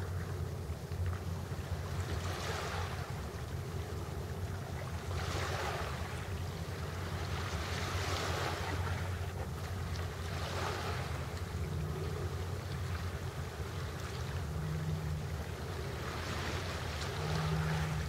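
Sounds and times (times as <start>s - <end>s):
steady low rumble: 0.0s - 18.0s
small waves on pebble shore: 7.0s - 9.0s, 10.2s - 11.2s.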